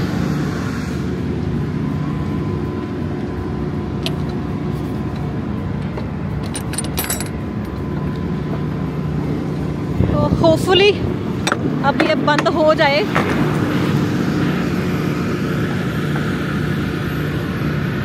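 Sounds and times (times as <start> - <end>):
diesel truck engine idling: 0.0 - 18.0
metallic latch clinks and rattles: 5.1 - 8.1.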